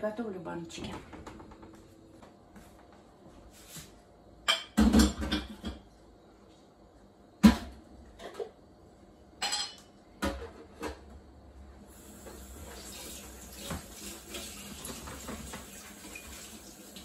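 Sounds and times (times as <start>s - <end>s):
glass jars clinking in metal sink: 9.4s - 9.9s.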